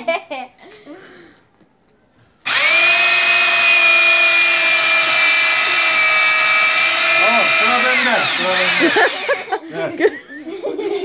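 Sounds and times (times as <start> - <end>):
electric drill whining: 2.4 - 9.5.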